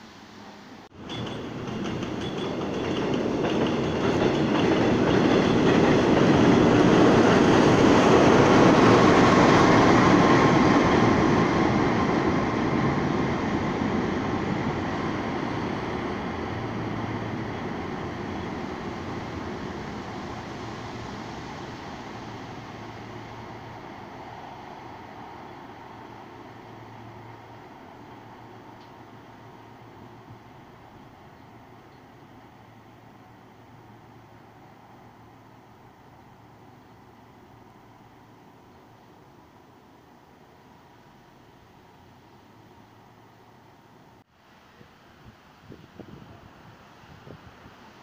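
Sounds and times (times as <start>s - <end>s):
train wheels rumbling on rails: 0.9s - 37.7s.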